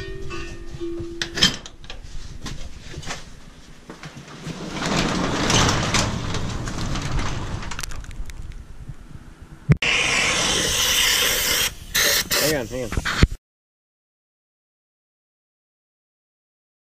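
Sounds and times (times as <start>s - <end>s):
garage door rollers rumbling: 4.0s - 8.4s.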